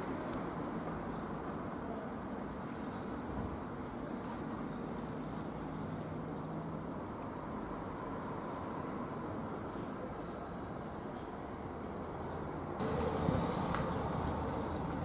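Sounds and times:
outdoor background rumble: 0:12.7 - 0:15.0.

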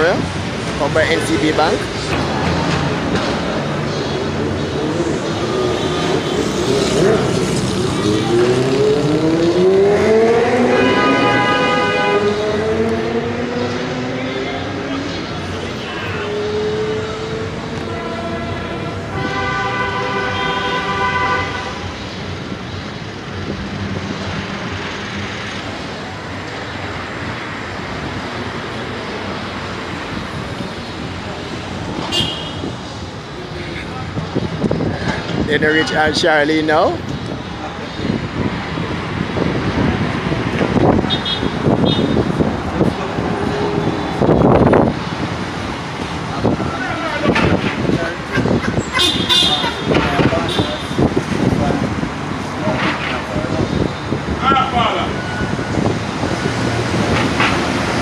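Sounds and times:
traffic and road noise: 0:00.0 - 0:58.0
vehicles passing: 0:00.0 - 0:58.0
vehicle horn: 0:10.6 - 0:12.6, 0:17.8 - 0:21.9, 0:32.1 - 0:32.7, 0:41.1 - 0:42.2, 0:48.3 - 0:51.0.

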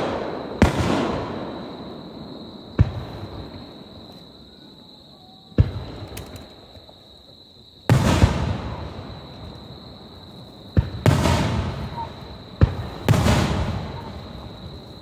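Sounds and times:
sharp firework cracks: 0:00.0 - 0:01.8, 0:10.8 - 0:14.2
firework booms: 0:00.0 - 0:04.0, 0:05.5 - 0:06.6, 0:07.9 - 0:15.0.

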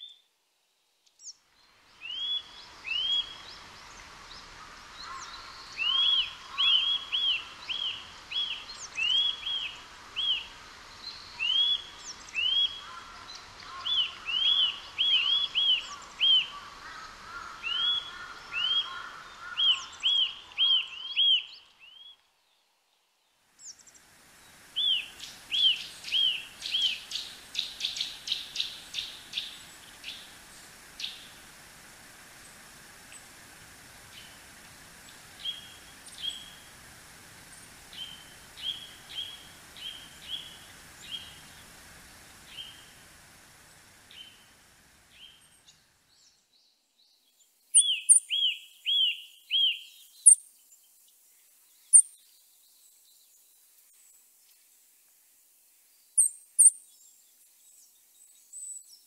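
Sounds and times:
bird whistling song: 0:02.0 - 0:03.5, 0:05.8 - 0:10.5, 0:11.4 - 0:12.8, 0:24.8 - 0:30.2, 0:47.7 - 0:50.4.

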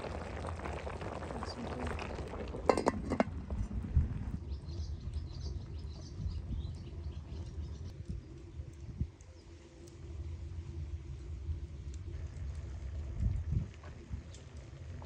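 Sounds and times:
steady low rumble: 0:00.0 - 0:15.0
small birds chirping: 0:04.4 - 0:09.6.

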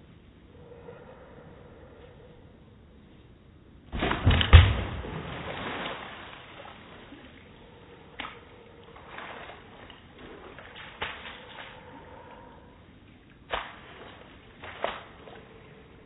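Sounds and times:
water balloon bursting with splash: 0:03.9 - 0:06.6.

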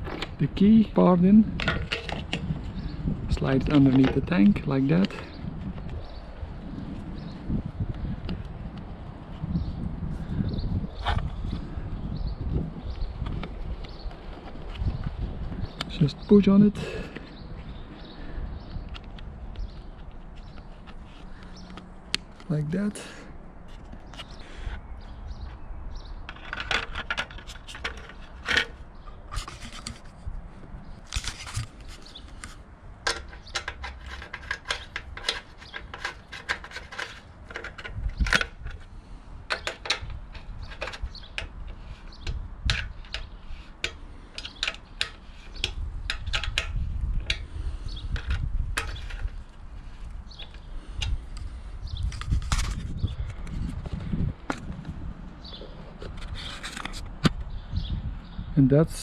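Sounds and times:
plastic parts clicking and knocking: 0:01.5 - 0:02.5, 0:26.2 - 0:30.0, 0:32.3 - 0:38.9, 0:39.5 - 0:47.5, 0:48.1 - 0:49.5.

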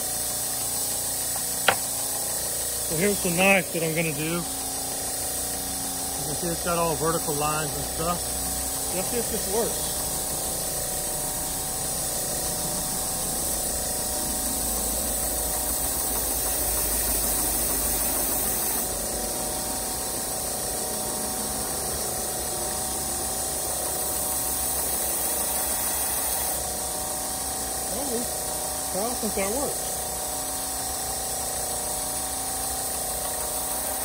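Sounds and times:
grinder motor humming: 0:00.0 - 0:34.0
abrasive belt hissing: 0:01.6 - 0:19.0.

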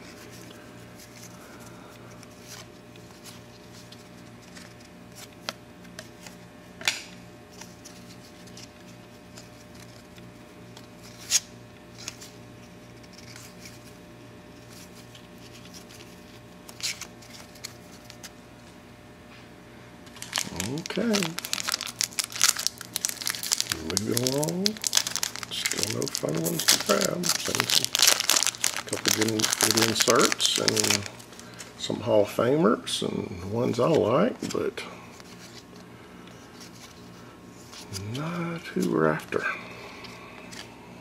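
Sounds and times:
cards being flicked through: 0:22.9 - 0:31.6.

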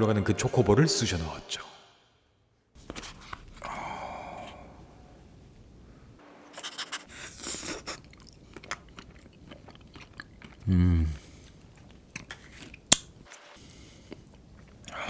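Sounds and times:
wet licking and lip smacking: 0:07.4 - 0:10.6.

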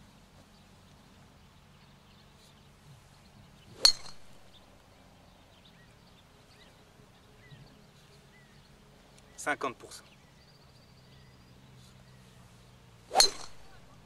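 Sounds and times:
golf club striking ball: 0:03.7 - 0:04.6, 0:13.1 - 0:13.9.

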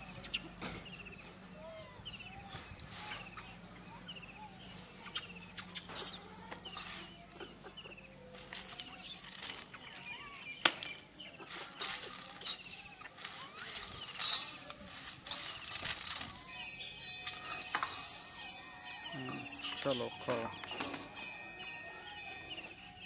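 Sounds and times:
birds chirping: 0:00.0 - 0:23.0
chickpeas pattering onto concrete: 0:04.6 - 0:19.6.

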